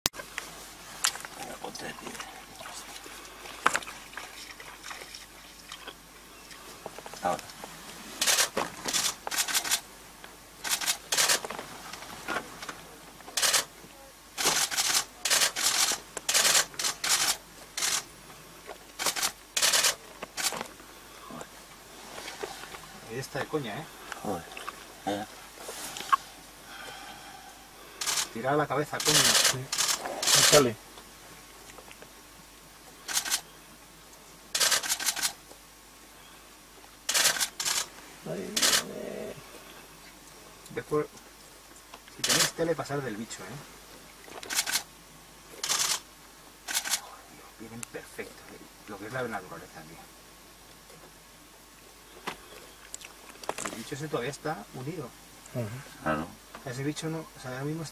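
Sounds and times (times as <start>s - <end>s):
camera shutters firing: 8.2s - 9.8s, 10.6s - 11.4s, 13.4s - 13.7s, 14.4s - 18.0s, 19.0s - 20.6s, 28.0s - 28.3s, 29.0s - 30.6s, 33.1s - 33.4s, 34.6s - 35.4s, 37.1s - 37.9s, 38.6s - 38.8s, 42.2s - 42.6s, 44.4s - 44.9s, 45.6s - 46.0s, 46.7s - 47.0s.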